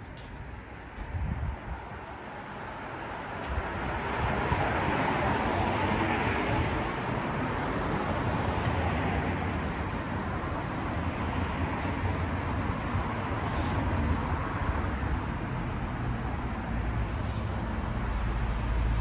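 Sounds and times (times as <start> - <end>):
road traffic going by: 0.0 - 19.0.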